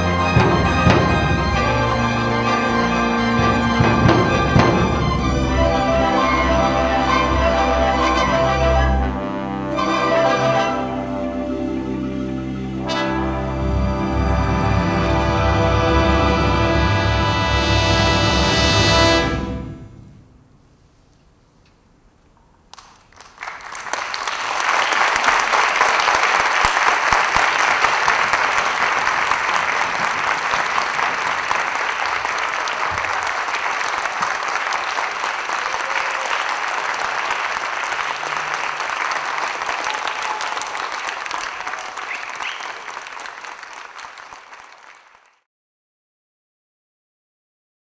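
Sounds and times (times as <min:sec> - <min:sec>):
audience applauding: 0:22.7 - 0:45.5.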